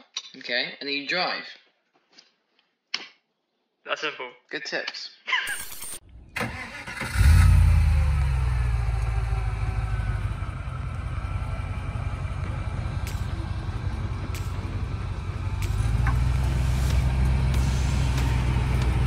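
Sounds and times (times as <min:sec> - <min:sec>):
off-road vehicle engine rumbling: 0:06.0 - 0:19.0.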